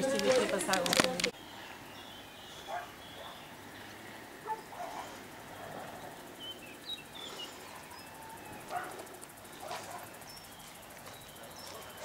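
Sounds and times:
faint countryside ambience: 0.0s - 12.0s
bird chirps: 1.3s - 3.6s.

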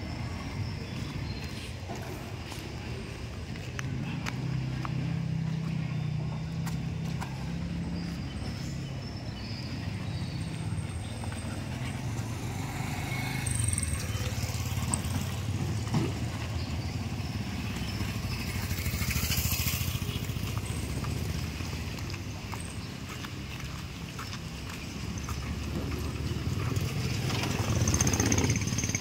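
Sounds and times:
motor vehicle engine running: 0.0s - 29.0s
flip-flop footsteps on concrete: 0.4s - 8.2s, 20.1s - 26.0s.

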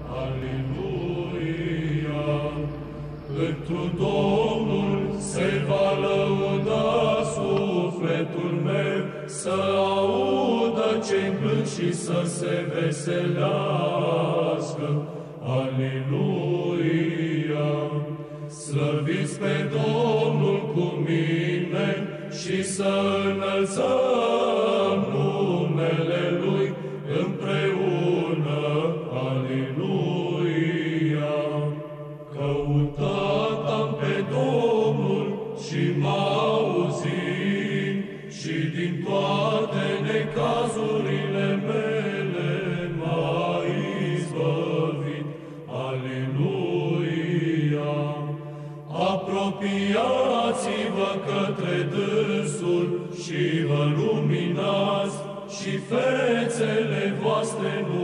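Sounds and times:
low held drone note: 0.0s - 7.2s
men singing a slow chant: 0.0s - 58.0s.

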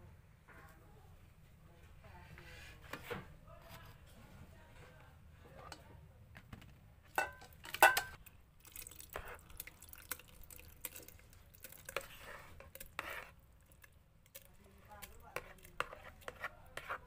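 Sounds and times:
metal spoon scraping a basin: 11.8s - 13.4s, 15.0s - 17.0s.

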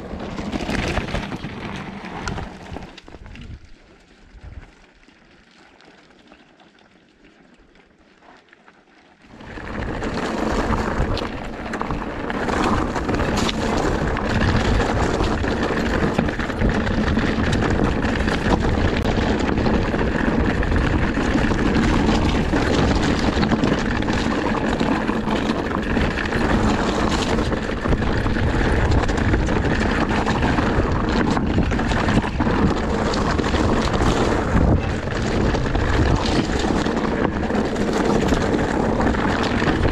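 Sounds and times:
bike frame rattling on trail: 0.0s - 39.9s
wind rushing over microphone: 9.3s - 39.9s.

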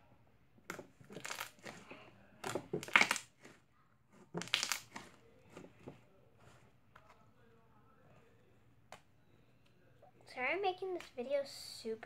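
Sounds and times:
slime squished by hand: 0.7s - 3.6s, 4.2s - 5.2s.

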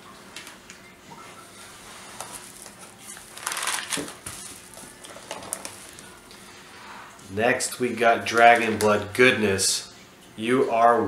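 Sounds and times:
plastic bags rustling: 1.8s - 6.7s.

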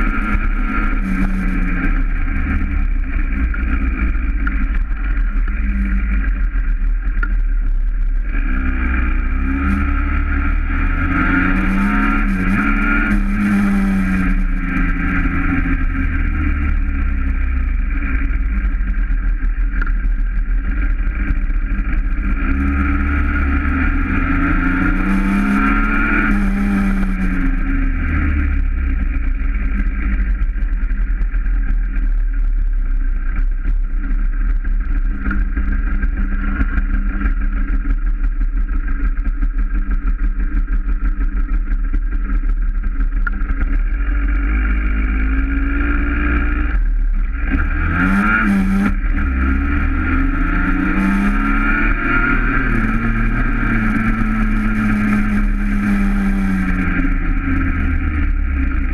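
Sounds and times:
small motorbike engine revving: 0.0s - 4.6s, 8.3s - 16.8s, 22.2s - 28.7s, 44.3s - 58.9s.

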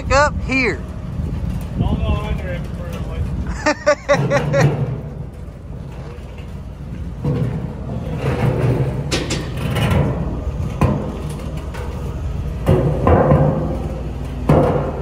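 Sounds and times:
low engine rumble: 0.0s - 15.0s
steel drums rolling on asphalt: 0.0s - 15.0s.

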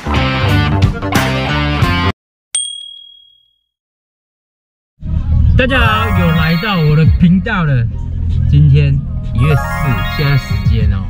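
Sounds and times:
high bell-like ding: 2.6s - 3.7s.

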